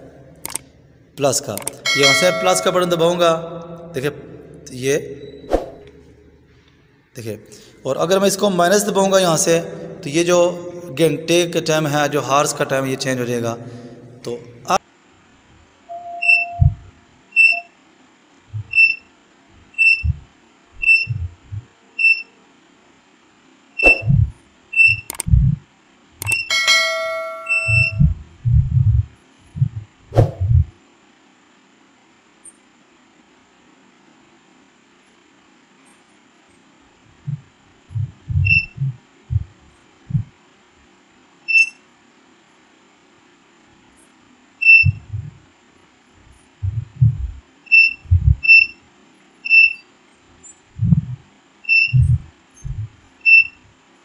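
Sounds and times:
short high beeps: 1.9s - 3.0s, 15.9s - 17.7s, 20.8s - 21.3s, 24.8s - 25.2s, 26.2s - 28.2s, 38.4s - 38.8s, 44.6s - 45.3s, 46.7s - 48.7s, 51.7s - 53.6s
short high buzzer beeps: 1.9s - 3.0s, 15.9s - 16.8s, 26.2s - 28.1s
dull low thumps: 16.6s - 16.9s, 18.5s - 18.9s, 19.6s - 21.7s, 23.9s - 25.6s, 27.3s - 30.8s, 37.1s - 40.4s, 44.8s - 45.4s, 46.2s - 48.7s, 50.7s - 53.1s.

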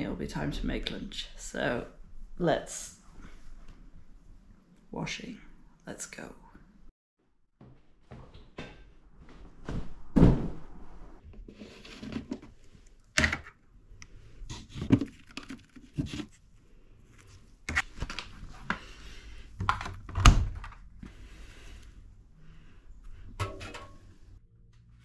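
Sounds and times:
knocks and thuds: 9.6s - 10.7s.

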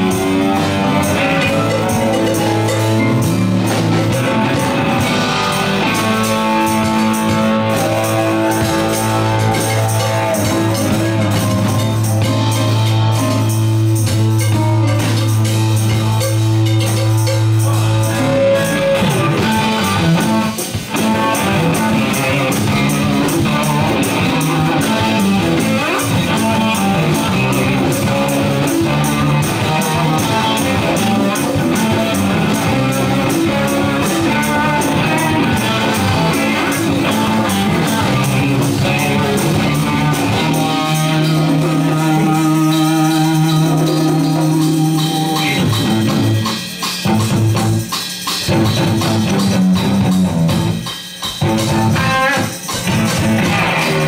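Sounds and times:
bass guitar: 0.0s - 54.0s
drum kit: 0.0s - 54.0s
electric guitar lead: 0.0s - 54.0s.

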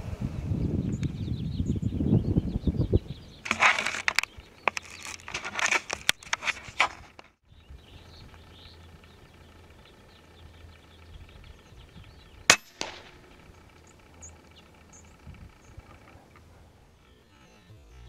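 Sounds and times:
air rifle shot crack: 12.5s - 13.7s.

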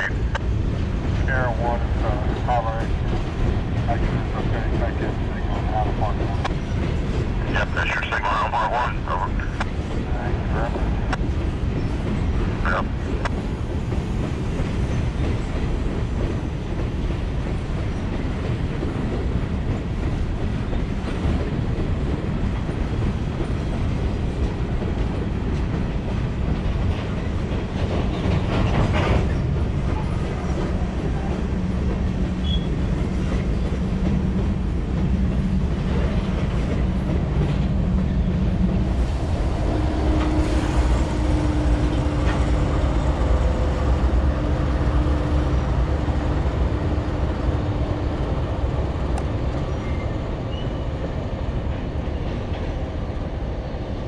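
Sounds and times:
diesel locomotive drone: 0.0s - 54.0s
freight train rolling past: 0.0s - 54.0s
steel wheels clacking over rail joints: 9.6s - 47.7s.

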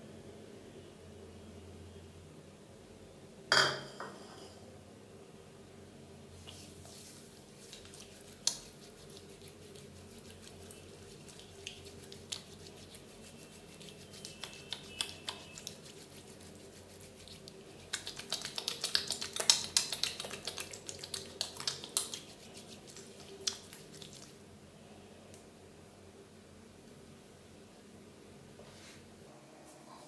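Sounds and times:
oiled hands squishing through hair: 6.4s - 24.4s.

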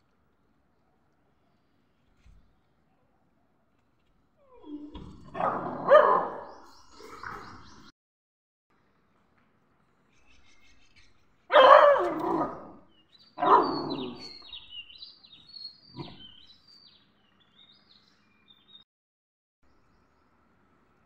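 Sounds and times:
puppy growling barks: 4.6s - 7.6s, 11.5s - 12.8s, 13.4s - 14.4s, 15.9s - 16.3s.

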